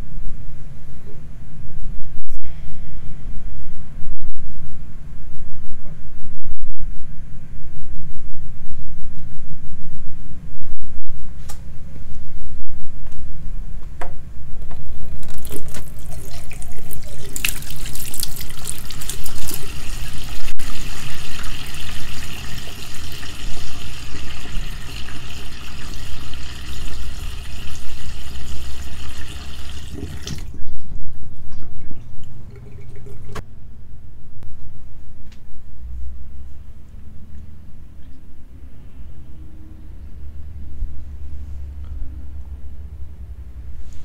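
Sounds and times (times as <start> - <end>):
steady low hum: 0.0 - 44.0
water running from a tap: 15.1 - 30.6, 32.5 - 33.4.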